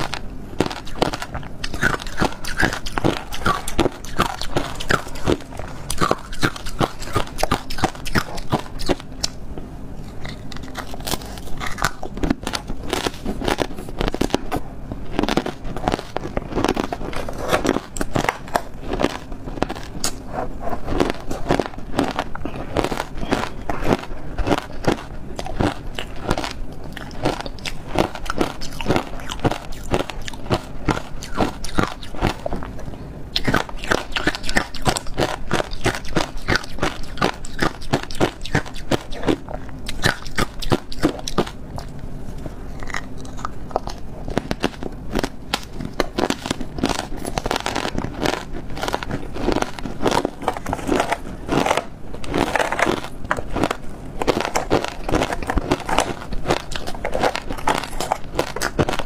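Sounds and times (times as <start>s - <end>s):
ice being chewed and crunching: 0.0s - 9.4s, 10.0s - 59.0s.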